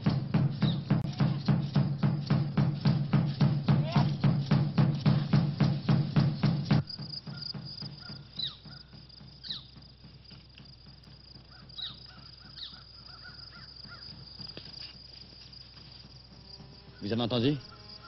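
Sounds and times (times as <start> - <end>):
bird calls: 0.0 - 1.8, 2.8 - 14.9
insects chirring: 0.0 - 18.0.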